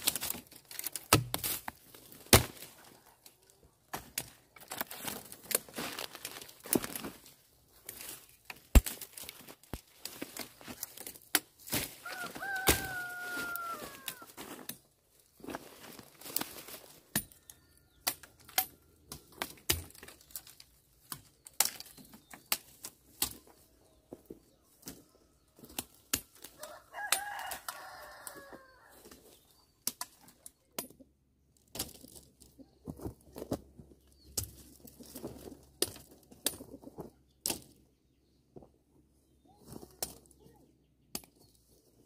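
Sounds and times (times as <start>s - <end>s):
rooster crowing: 12.0s - 14.4s, 26.5s - 29.0s.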